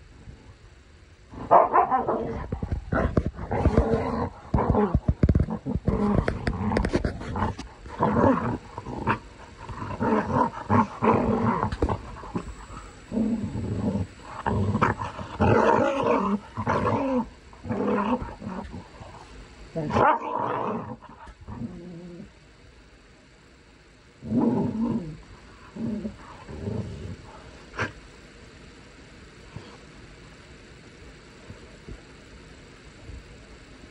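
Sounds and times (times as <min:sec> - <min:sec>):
dog growling and snarling: 0:01.3 - 0:22.3, 0:24.2 - 0:28.0.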